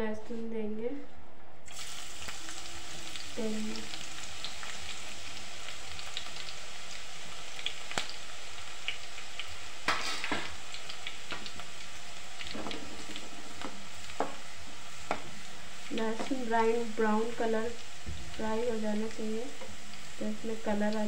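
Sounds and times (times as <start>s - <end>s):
garlic sizzling in oil: 1.7s - 21.0s.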